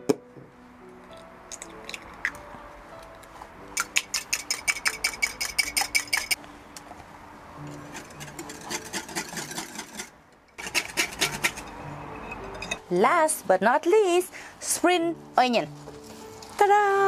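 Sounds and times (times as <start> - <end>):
soft background music: 0.0 - 17.0.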